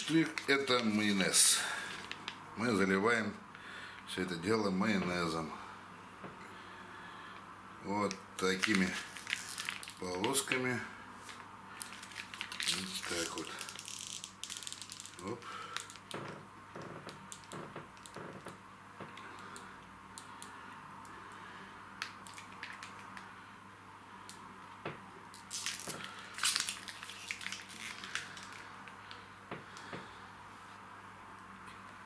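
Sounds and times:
loud plastic crackling: 0:00.0 - 0:02.4, 0:08.4 - 0:10.7, 0:11.7 - 0:18.6, 0:22.0 - 0:23.3, 0:25.3 - 0:30.0
plastic pouch squelching and crinkling: 0:00.0 - 0:02.4, 0:08.5 - 0:10.6, 0:11.8 - 0:16.2, 0:22.1 - 0:23.2, 0:25.4 - 0:29.2.

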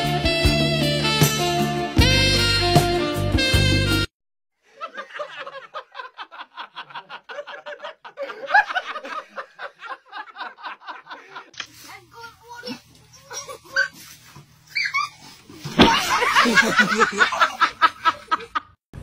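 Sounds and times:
music: 0:00.0 - 0:04.1.

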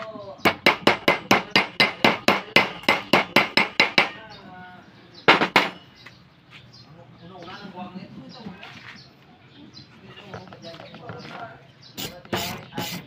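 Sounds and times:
hammer striking steel: 0:00.5 - 0:04.2.

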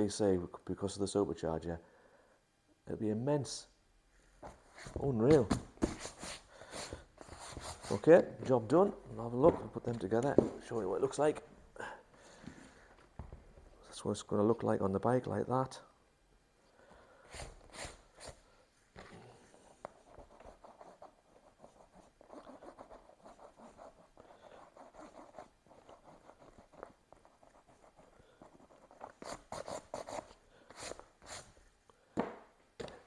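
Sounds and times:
handling rubbing and scraping: 0:04.4 - 0:11.4.

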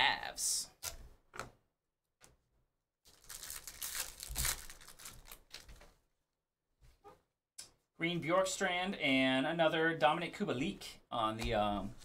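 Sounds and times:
card pack wrapper crinkling: 0:03.1 - 0:05.8.

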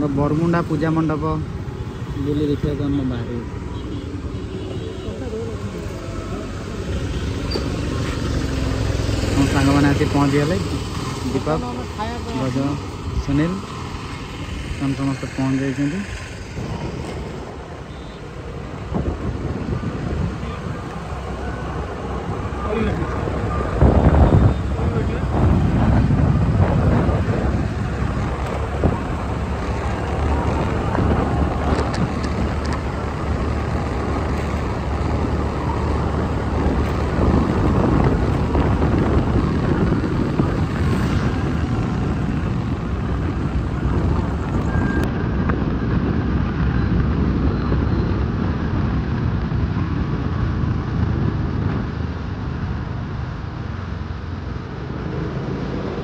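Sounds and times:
vehicle driving on road: 0:00.0 - 0:56.0.

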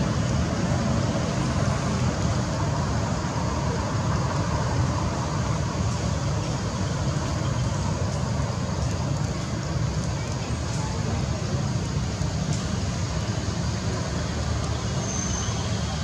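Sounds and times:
hiss: 0:00.0 - 0:16.0
low rumbling background noise: 0:00.0 - 0:16.0.

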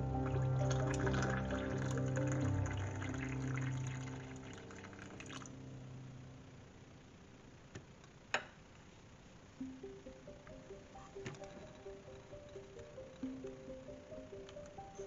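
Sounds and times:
water pouring into cup: 0:00.2 - 0:05.6.

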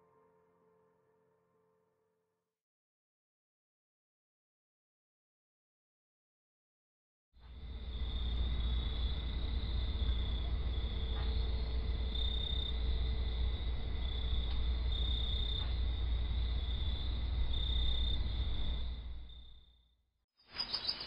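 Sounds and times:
crickets chirping: 0:07.5 - 0:19.8, 0:20.5 - 0:21.0.

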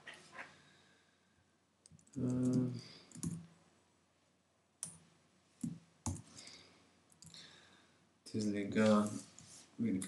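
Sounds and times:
keyboard keystrokes and clicks: 0:01.8 - 0:03.5, 0:05.6 - 0:06.3.

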